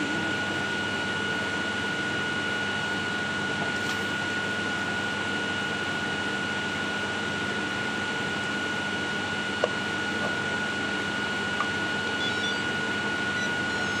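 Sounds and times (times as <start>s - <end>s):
mechanical hum and hiss: 0.0s - 14.0s
high whine: 9.4s - 14.0s.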